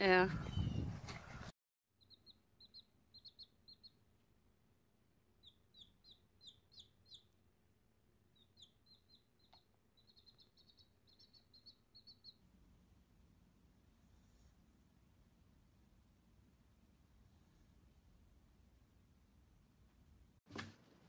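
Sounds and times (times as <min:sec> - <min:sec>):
chick peeping: 0:02.0 - 0:04.0, 0:05.4 - 0:07.4, 0:08.4 - 0:12.4.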